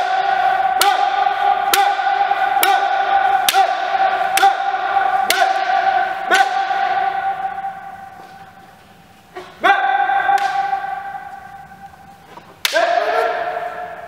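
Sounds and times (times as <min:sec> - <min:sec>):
drawn-out shouts: 0:09.6 - 0:11.8.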